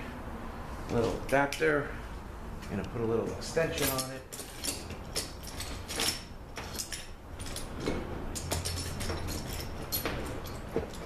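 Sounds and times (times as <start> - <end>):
metal hand tools clinking: 3.7 - 11.0.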